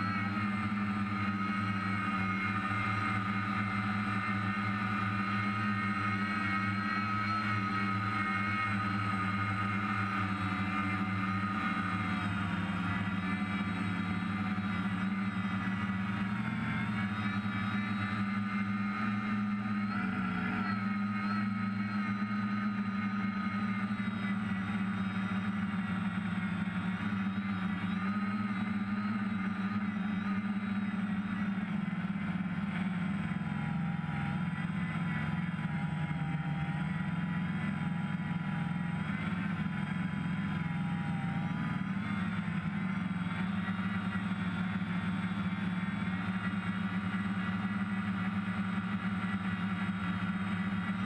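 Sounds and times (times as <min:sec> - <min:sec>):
drone motors buzzing: 0:00.0 - 0:51.0.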